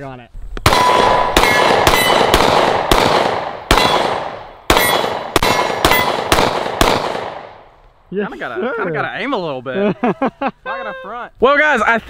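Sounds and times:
pistol shots with echo: 0.6 - 7.6.

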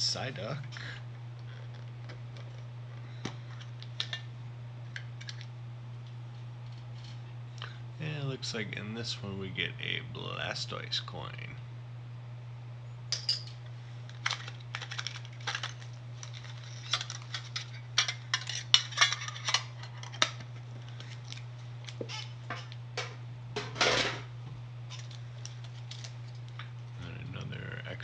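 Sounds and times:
steady low hum: 0.0 - 28.0
packet crinkling: 14.0 - 19.5, 25.0 - 26.6.

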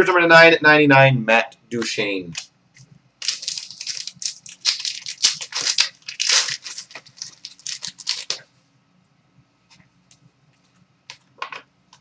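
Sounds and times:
wrapper rustling and tearing: 3.2 - 8.4.

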